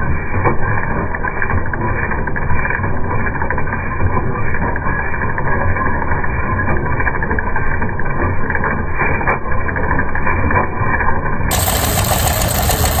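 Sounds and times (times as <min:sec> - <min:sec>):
engine driving chain saw drive: 0:11.5 - 0:13.0.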